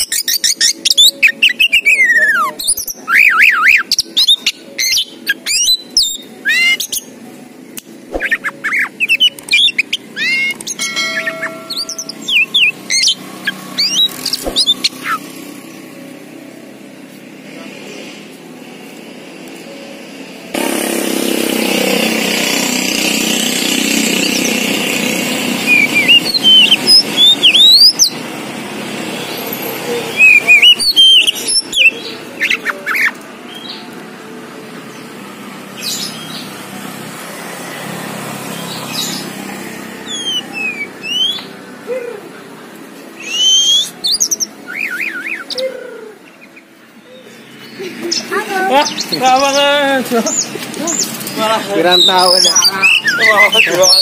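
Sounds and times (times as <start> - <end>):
bird whistled song: 0.0 - 7.1, 8.1 - 15.5, 24.0 - 24.8, 25.6 - 28.2, 29.3 - 33.8, 40.0 - 41.6, 43.2 - 49.2, 51.9 - 54.0.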